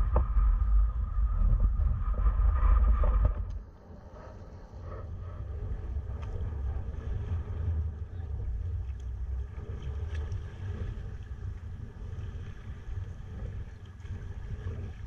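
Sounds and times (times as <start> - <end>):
water washing around boat: 0.0 - 15.0
wind buffeting microphone: 0.0 - 15.0
faint splashes: 6.0 - 15.0.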